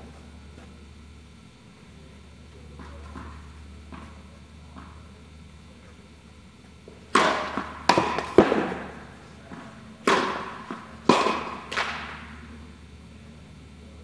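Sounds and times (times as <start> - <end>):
tennis ball bouncing on court: 7.1 - 8.9
tennis ball struck by rackets: 7.1 - 8.9, 9.5 - 12.2.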